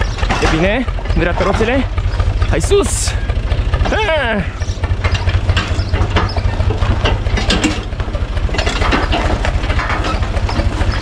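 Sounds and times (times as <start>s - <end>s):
loose metal clanking: 0.0s - 11.0s
tractor diesel engine running: 0.0s - 11.0s.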